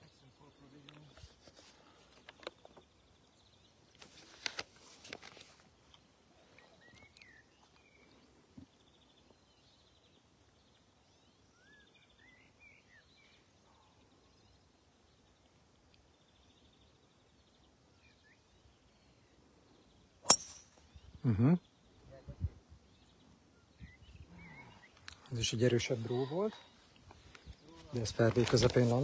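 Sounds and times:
bird chirps: 5.9 - 22.2, 22.8 - 28.0.

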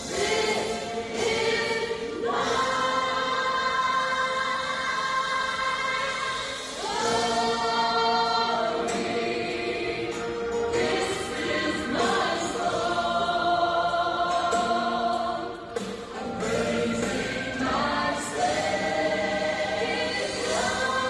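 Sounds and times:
women singing gospel song: 0.0 - 21.0.

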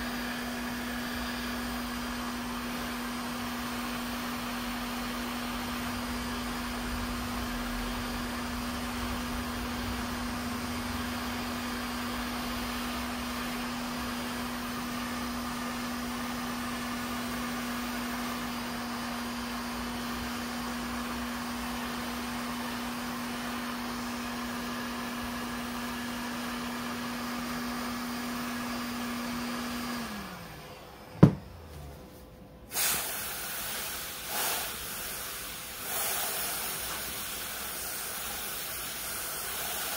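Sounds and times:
aerosol spray can hissing: 32.7 - 39.9
heat gun blowing: 32.7 - 39.9.

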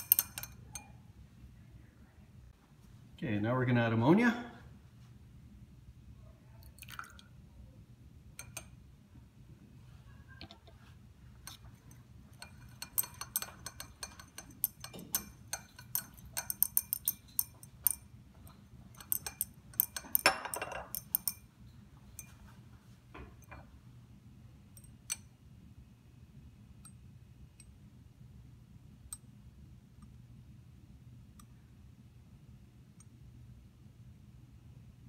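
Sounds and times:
glass rod clinking in beaker: 0.0 - 1.0, 8.4 - 8.8, 11.4 - 21.5, 24.7 - 25.3.

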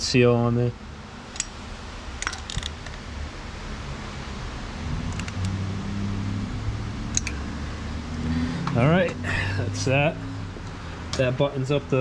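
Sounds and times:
steady low hum: 0.0 - 12.0
socket wrench clicking: 1.3 - 1.6, 2.2 - 3.0, 7.1 - 7.4.

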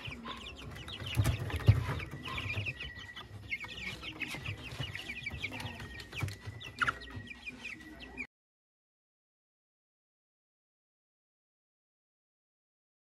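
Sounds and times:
chicks peeping: 0.0 - 8.3.

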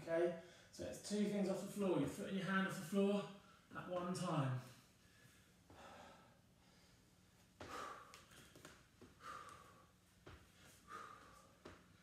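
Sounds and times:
man breathing hard: 5.0 - 12.0.

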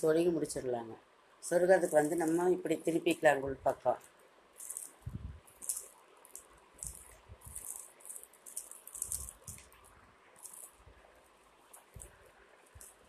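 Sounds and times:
plastic basket strands crackling: 1.5 - 13.0.

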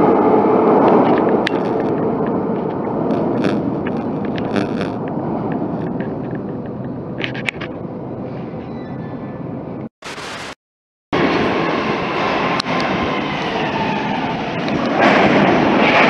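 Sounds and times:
metro train rumbling: 0.0 - 9.9, 11.2 - 16.0
train clicks: 0.9 - 7.8
train squeal: 8.2 - 9.6, 12.1 - 15.0.

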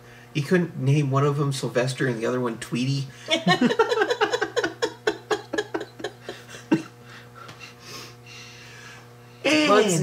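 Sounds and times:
people laughing: 3.3 - 7.8.

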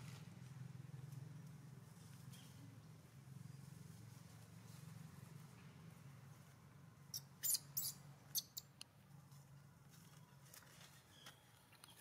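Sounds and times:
monkey high-pitched squeaks: 7.1 - 8.7.

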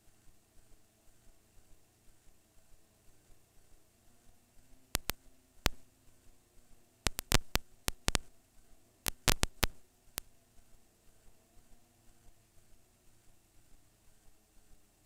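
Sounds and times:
sharp clicks: 5.0 - 5.8, 7.1 - 8.3, 9.1 - 9.8.

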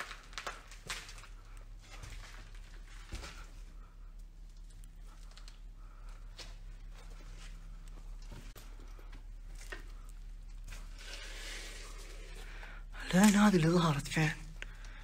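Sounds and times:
footsteps on rubble: 0.0 - 11.0.

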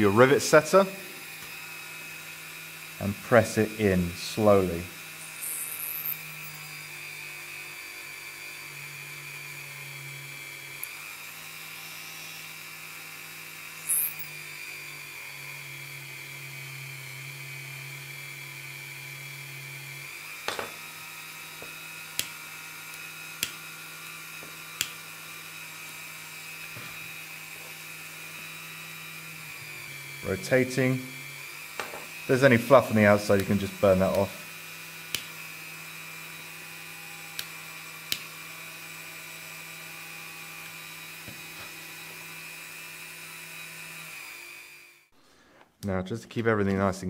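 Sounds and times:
rotary tool whining: 0.0 - 45.1.

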